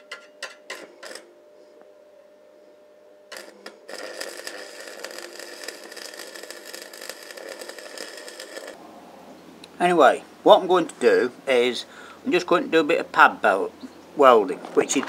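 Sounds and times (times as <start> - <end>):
welding rod striking: 0.0 - 1.3, 3.3 - 8.8
welding arc crackling: 0.7 - 1.3, 3.3 - 8.8.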